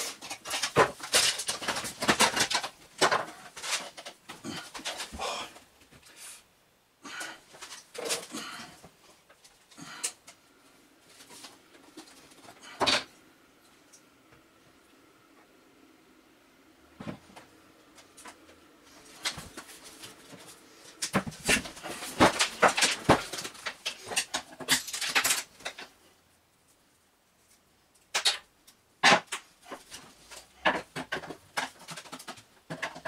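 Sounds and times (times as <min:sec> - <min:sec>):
plastic parts clicking and clattering: 0:00.0 - 0:05.2, 0:07.5 - 0:10.4, 0:11.1 - 0:13.1, 0:18.0 - 0:26.0, 0:28.0 - 0:33.0.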